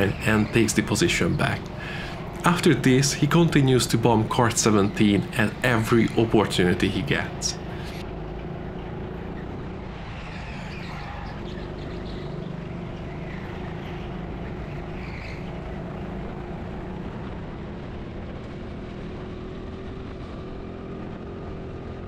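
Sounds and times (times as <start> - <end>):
high squeals: 0.0 - 8.0, 9.2 - 15.7
go-kart motor drone: 0.0 - 22.0.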